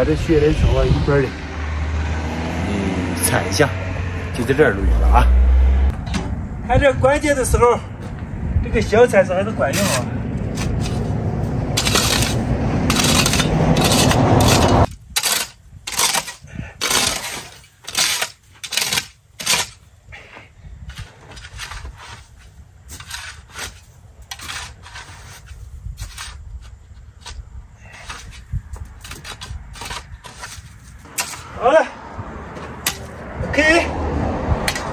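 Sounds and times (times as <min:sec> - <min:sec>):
shovel scraping snow: 0:09.7 - 0:19.8, 0:20.9 - 0:26.4, 0:27.2 - 0:31.4.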